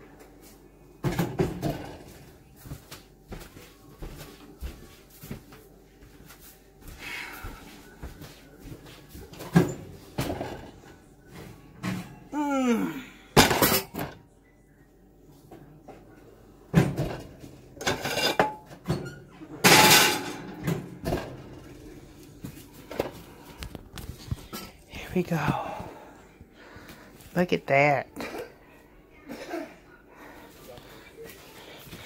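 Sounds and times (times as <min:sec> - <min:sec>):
kitchen knocks and clatter: 0:01.0 - 0:02.2, 0:09.3 - 0:10.9, 0:13.4 - 0:14.2, 0:16.7 - 0:21.7.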